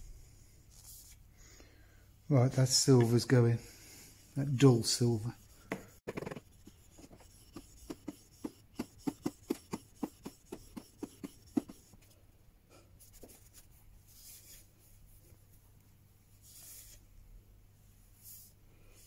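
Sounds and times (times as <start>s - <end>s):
soft cloth wipe: 0.2s - 1.3s, 13.0s - 19.0s.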